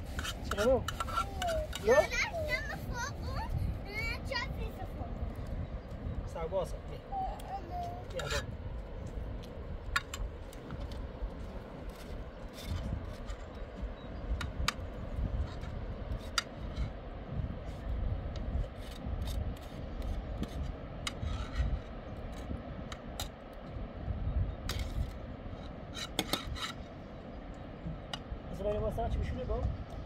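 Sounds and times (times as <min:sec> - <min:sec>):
spoon scraping a pot: 0:00.0 - 0:01.8.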